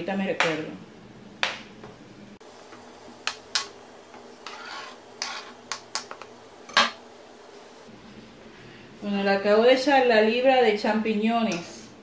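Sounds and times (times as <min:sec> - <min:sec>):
spatula scraping cutting board: 0:04.2 - 0:05.8.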